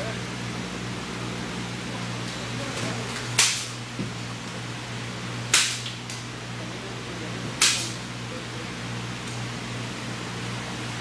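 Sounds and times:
steady low hum: 0.0s - 11.0s
sharp cracks with hissing tail: 3.2s - 3.8s, 5.5s - 6.3s, 7.6s - 8.0s.

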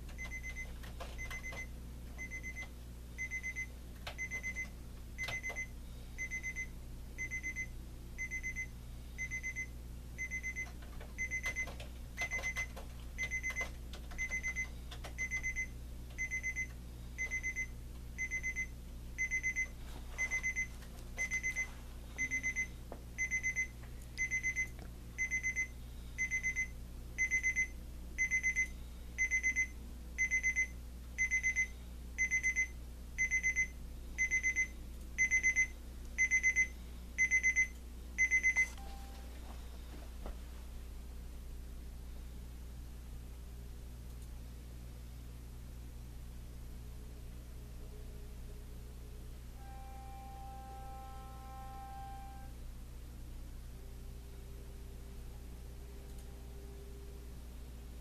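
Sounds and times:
alarm clock beeping: 5.2s - 10.6s, 15.2s - 21.6s, 22.2s - 39.0s.

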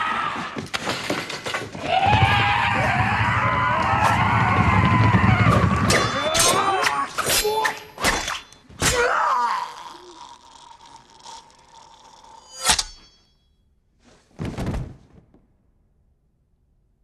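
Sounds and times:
sword hits and slashes: 5.9s - 9.2s
men groaning and crying out: 8.9s - 12.5s.

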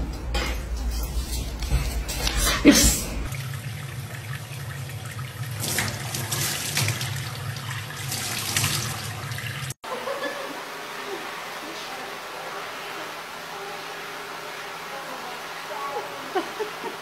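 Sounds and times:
faucet water running into sink: 2.6s - 9.8s.

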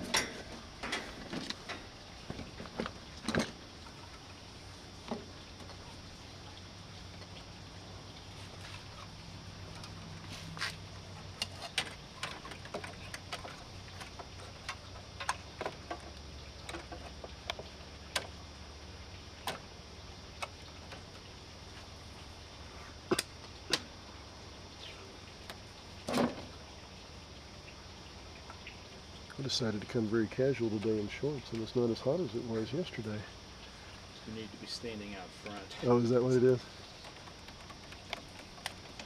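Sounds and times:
wires rattling in metal panel: 0.0s - 3.6s
low steady hum: 0.0s - 39.0s.

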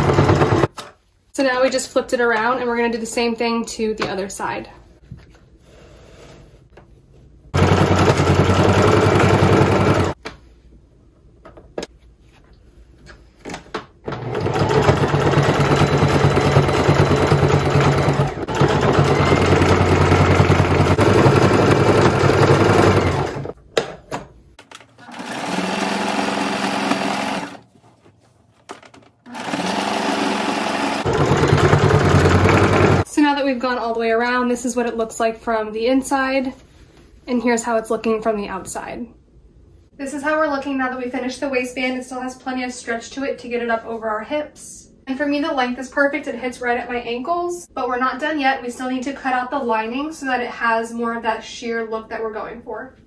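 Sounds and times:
sewing machine stitching: 0.0s - 0.7s, 7.6s - 10.2s, 14.1s - 23.6s, 25.0s - 27.6s, 29.2s - 33.0s.

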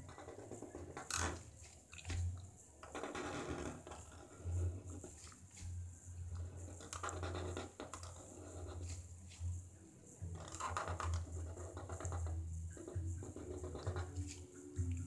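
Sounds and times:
marker scratching on paper: 0.0s - 1.8s, 2.9s - 9.5s, 10.4s - 15.0s
steady low hum: 3.4s - 15.0s.

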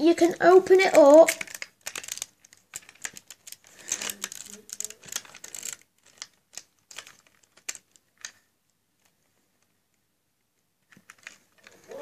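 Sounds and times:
plastic toy pieces clicking: 0.7s - 8.4s.

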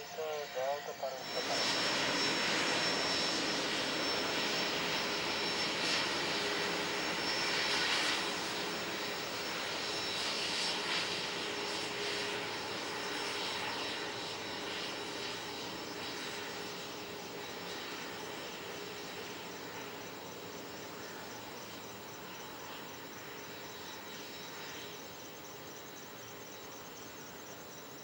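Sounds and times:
jet engines running at low power: 0.0s - 28.0s.

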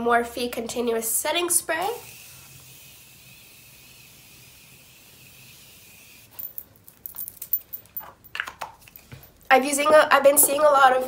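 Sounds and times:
spray can hissing: 1.8s - 6.3s.

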